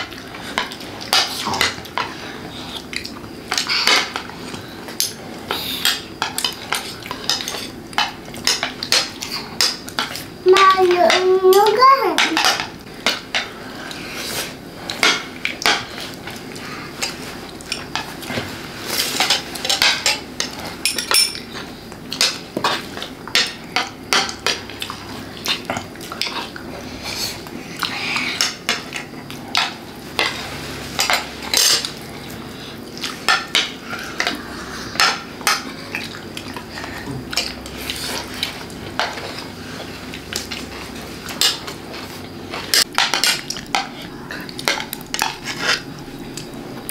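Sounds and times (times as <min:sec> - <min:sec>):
cutlery clinking on plates: 0:17.0 - 0:24.7.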